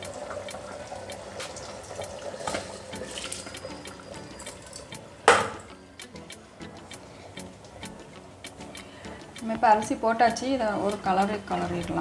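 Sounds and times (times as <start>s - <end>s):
boiling liquid bubbling: 0.0s - 5.7s
liquid pouring: 0.0s - 5.7s.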